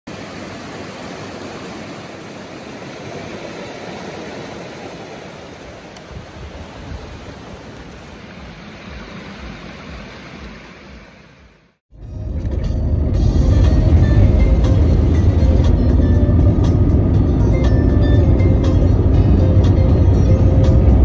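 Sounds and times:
stream rushing over rocks: 0.1s - 11.8s
low rumbles: 6.0s - 21.0s.

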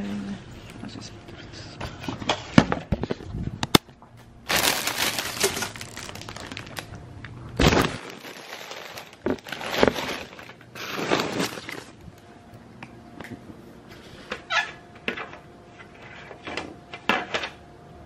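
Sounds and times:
packaging crinkling: 4.4s - 12.0s.

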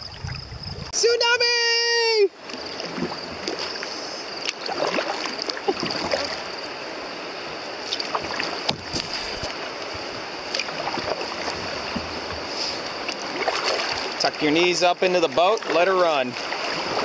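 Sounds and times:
river water rushing: 0.9s - 17.0s
small splashes and drips: 2.5s - 6.6s, 10.5s - 14.4s.

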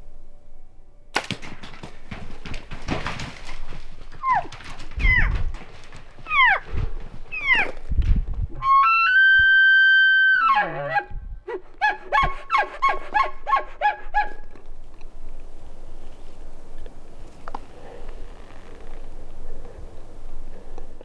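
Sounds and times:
elk bugling: 6.2s - 7.8s, 8.6s - 14.6s.

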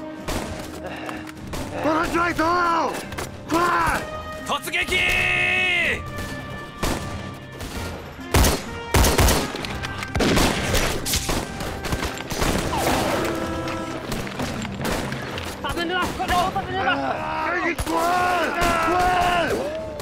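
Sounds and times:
dramatic background music: 0.0s - 20.0s
rifle shots and volleys: 1.4s - 3.4s, 6.2s - 16.6s, 17.7s - 19.6s.

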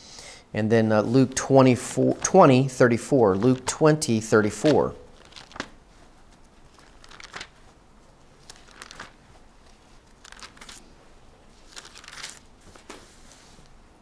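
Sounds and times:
thin pages rustling: 4.6s - 13.8s.

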